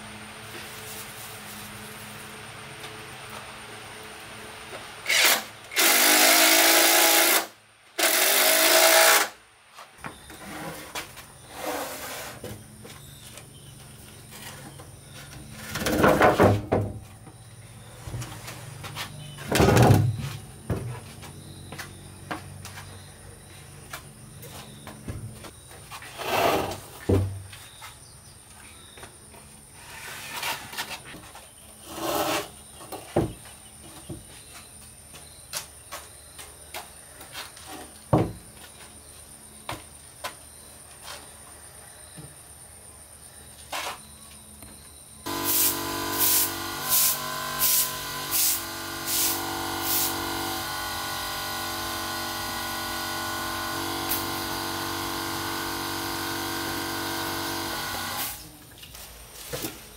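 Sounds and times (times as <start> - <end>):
furniture scraping on concrete floor: 10.1 - 13.3, 25.9 - 27.4, 29.8 - 31.2, 31.8 - 32.6.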